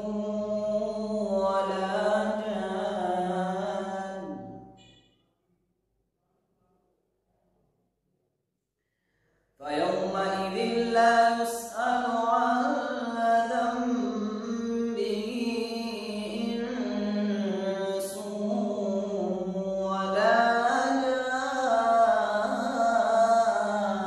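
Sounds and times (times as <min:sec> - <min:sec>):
man chanting melodically: 0:00.0 - 0:04.8, 0:09.6 - 0:24.0.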